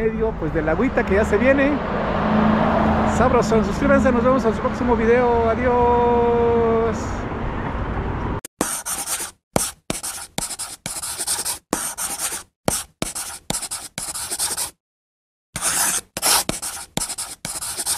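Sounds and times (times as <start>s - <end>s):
chalk scratching on chalkboard: 8.6s - 14.8s, 15.6s - 17.9s.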